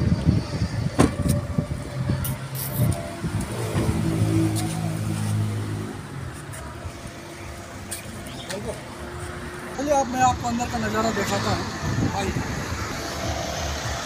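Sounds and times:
vehicle engine humming: 0.0 - 14.0
car door shutting: 0.9 - 1.5.

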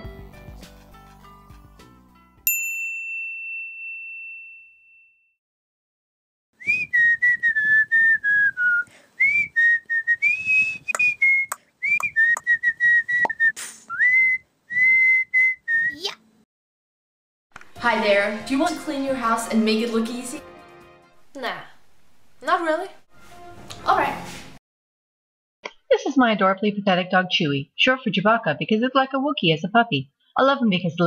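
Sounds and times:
person whistling a tune: 6.6 - 16.2.

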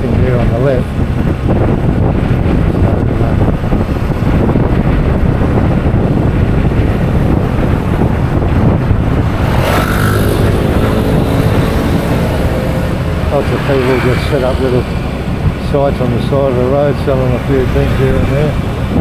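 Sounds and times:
motorcycle engine running: 0.0 - 19.0
wind rumble on microphone: 0.0 - 19.0.

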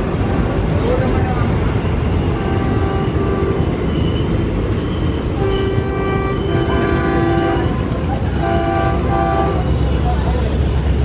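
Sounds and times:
diesel locomotive passing: 0.0 - 11.0
train horn blasts: 2.2 - 3.9, 5.3 - 9.8.

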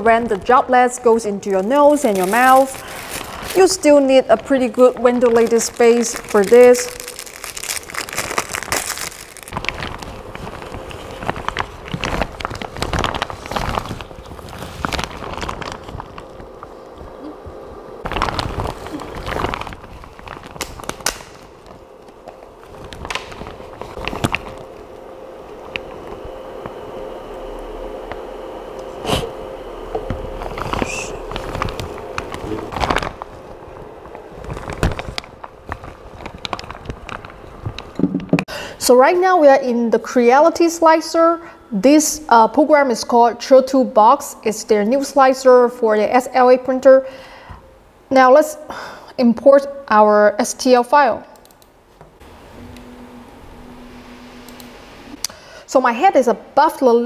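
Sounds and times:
faint steady hum: 0.0 - 57.0
plastic raincoat crinkling: 1.5 - 16.6, 18.0 - 24.9, 30.4 - 37.9.

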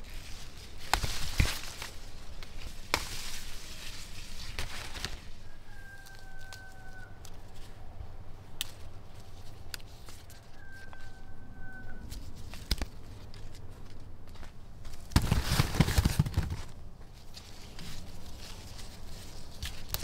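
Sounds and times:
leaves rustling and snapping: 0.0 - 7.8, 8.5 - 11.2, 12.0 - 20.0
rooster crowing: 5.3 - 7.5, 10.2 - 12.2.

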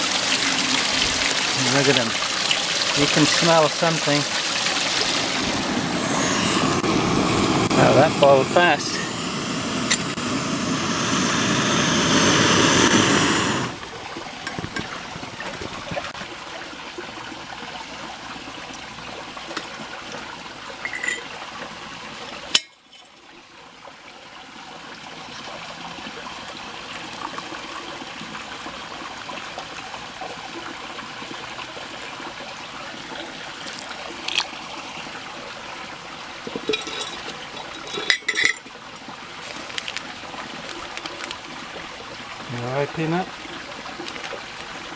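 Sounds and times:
water pouring into mug: 0.0 - 6.8, 33.0 - 35.1
gas stove burner roaring: 4.8 - 13.8.

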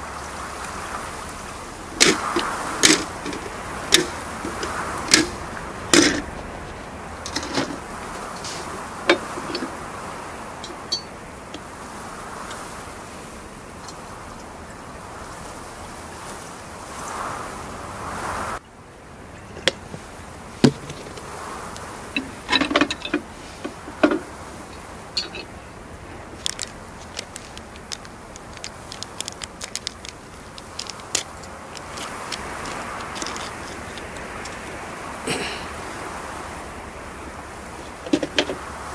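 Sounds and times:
plastic wrapper tearing: 26.4 - 33.5.

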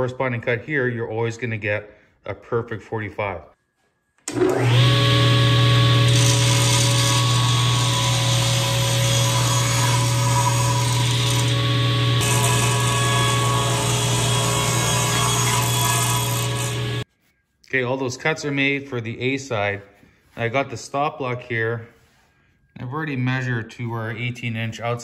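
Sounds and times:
table saw cutting wood: 4.3 - 17.0.

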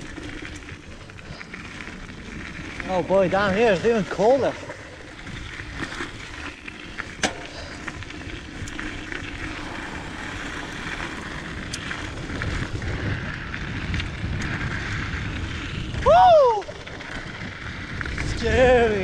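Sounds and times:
tyres rolling over gravel: 0.0 - 19.0
wind rumbling on microphone: 0.0 - 19.0
bike clicks and knocks: 4.7 - 9.7.

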